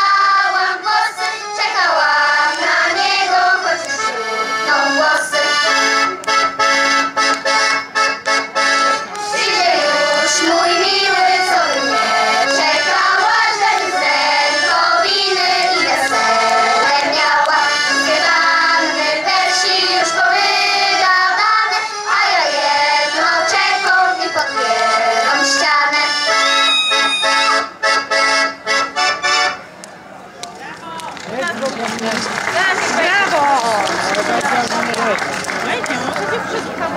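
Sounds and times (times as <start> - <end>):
children's choir singing: 0.0 - 6.1, 9.2 - 27.6
instrumental accompaniment: 0.0 - 30.0.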